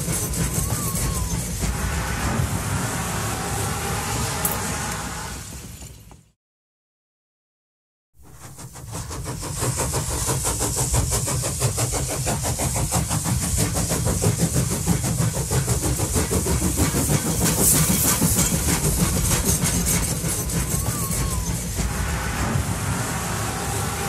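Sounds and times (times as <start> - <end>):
hiss: 0.0 - 5.8, 8.2 - 24.0
train running: 0.0 - 6.4, 8.2 - 24.0.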